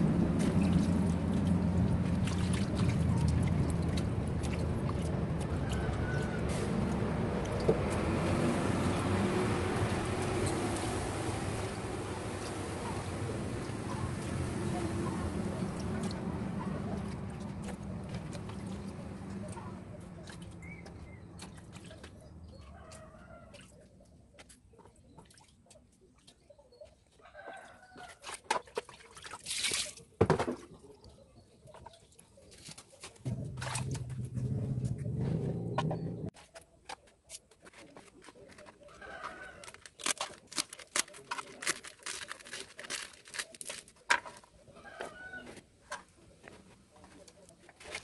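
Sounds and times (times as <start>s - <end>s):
leaves rustling with crisp clicks: 37.3s - 45.5s.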